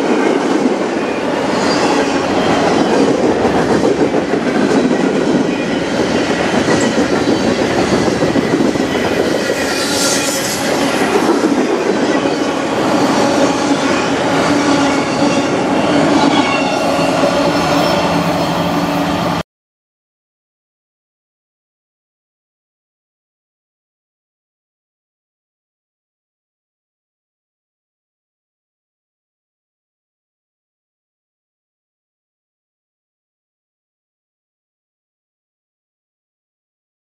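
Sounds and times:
train wheels clacking on rails: 0.0s - 19.4s
wheels squealing on rails: 1.0s - 3.8s, 4.8s - 19.4s.

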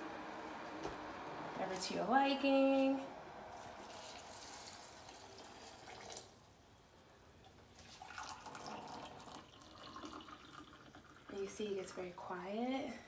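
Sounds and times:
water pouring into a bowl: 3.6s - 6.4s, 7.7s - 11.5s.

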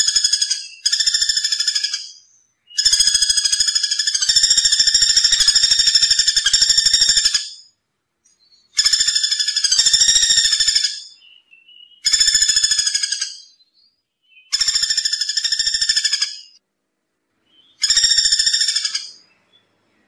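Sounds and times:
woodpecker rattling trill: 0.0s - 2.2s, 2.8s - 7.7s, 8.7s - 11.2s, 12.0s - 13.5s, 14.5s - 16.6s, 17.7s - 19.3s.

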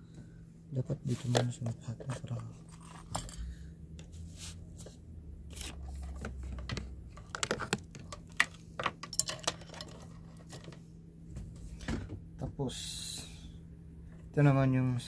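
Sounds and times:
low steady hum: 0.0s - 15.0s
clicks and knocks of cable handling: 5.6s - 10.8s.

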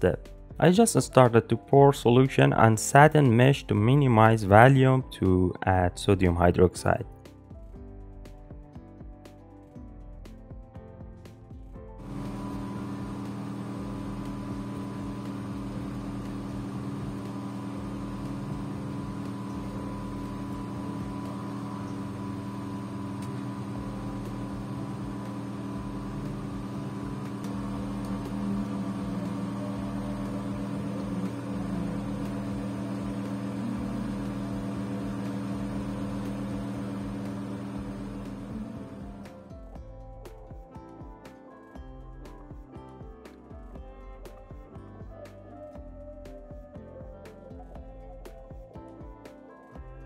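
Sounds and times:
droning hum of low tones: 12.0s - 39.4s.

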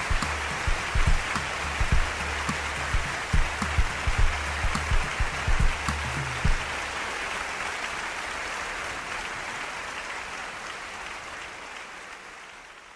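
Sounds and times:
bass beats of music: 0.0s - 6.7s
people clapping: 0.0s - 12.9s.

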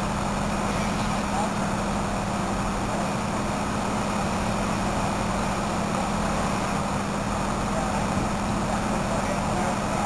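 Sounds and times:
vehicle engine humming: 0.0s - 10.0s.

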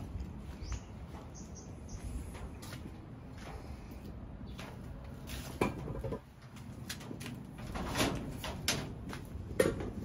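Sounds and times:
tools knocking and rattling: 5.6s - 6.3s.

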